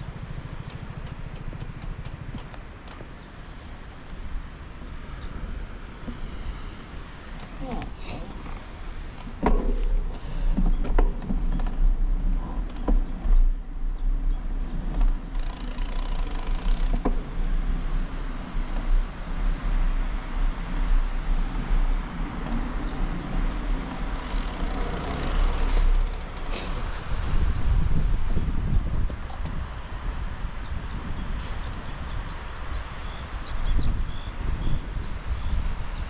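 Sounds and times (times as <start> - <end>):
bike rattling clicks: 0.0 - 3.2, 14.9 - 17.3, 23.9 - 27.4, 31.4 - 31.9
wind and road rumble: 0.0 - 36.0
tyre and air hiss: 5.8 - 10.8, 24.2 - 27.6, 31.3 - 31.8.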